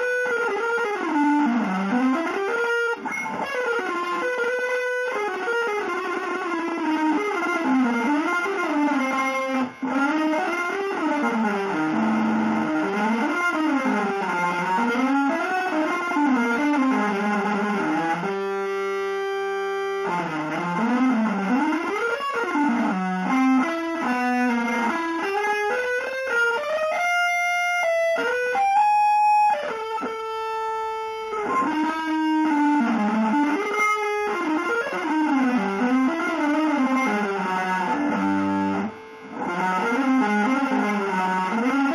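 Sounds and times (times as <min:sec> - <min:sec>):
electric guitar fast runs: 0:00.0 - 0:19.0.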